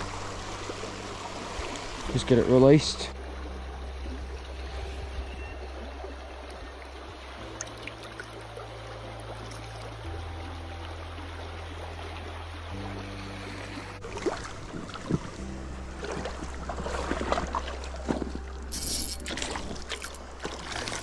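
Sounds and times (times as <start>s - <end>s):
river water flowing: 0.0s - 21.0s
soft background music: 0.0s - 21.0s.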